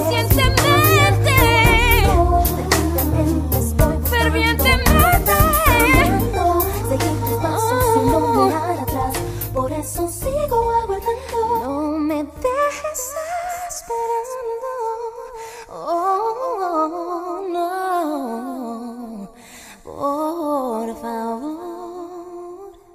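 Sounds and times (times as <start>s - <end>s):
bass and backing music: 0.0s - 12.6s
woman singing wordless vocals: 0.0s - 22.9s.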